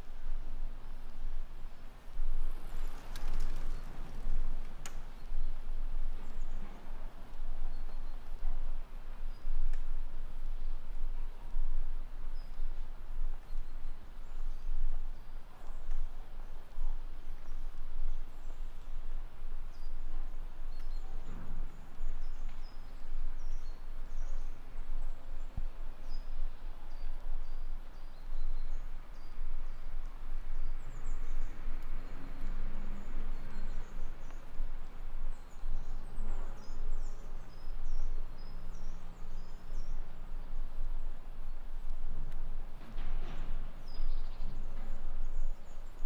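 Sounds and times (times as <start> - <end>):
small birds chirping: 2.5 - 42.4, 43.3 - 46.0.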